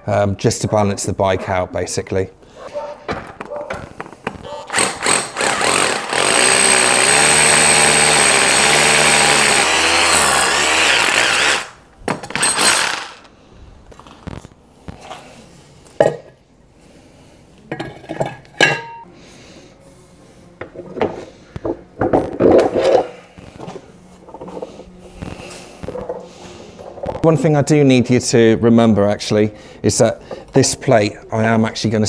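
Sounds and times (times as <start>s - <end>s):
cordless drill boring into wood: 4.7s - 13.3s.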